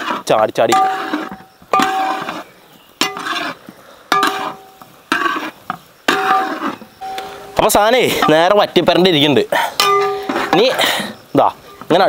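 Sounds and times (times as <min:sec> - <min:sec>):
spoon scraping metal pot: 0:00.0 - 0:07.6
pot ringing: 0:07.0 - 0:08.8, 0:09.8 - 0:10.7.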